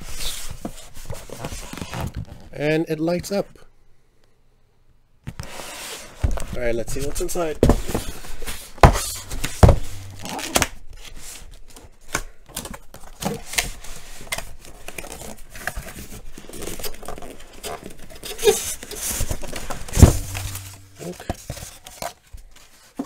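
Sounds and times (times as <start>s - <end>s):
knocks on cardboard box: 8.8s - 10.2s
cardboard tearing and scraping: 9.0s - 11.4s.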